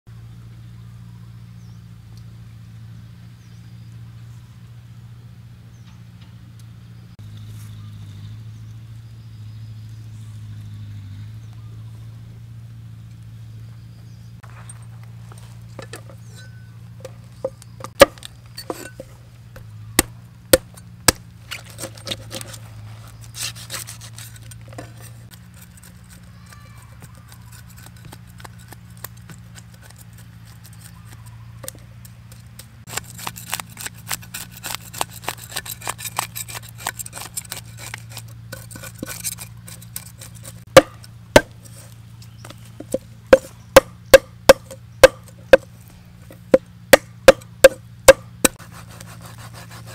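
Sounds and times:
cleaver chopping: 17.4 - 19.0, 19.6 - 22.6, 27.0 - 49.9
scraping fish scales: 21.4 - 31.4, 32.4 - 43.5.

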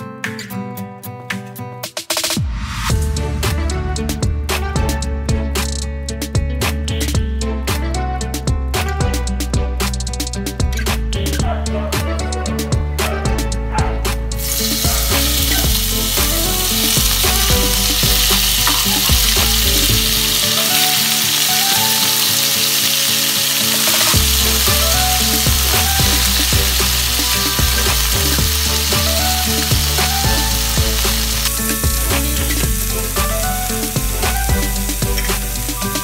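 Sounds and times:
meat sizzling in hot oil: 14.4 - 36.0
tongs stirring in wok: 14.5 - 36.0.

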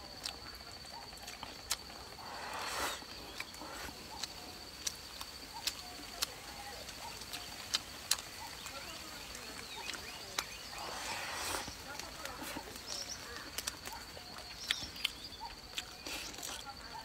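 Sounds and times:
high-pitched insect trill: 0.0 - 17.0
mouth clicks and smacks chewing: 0.2 - 2.1, 2.9 - 17.0
sucking slurp: 2.2 - 4.0, 10.7 - 11.8.

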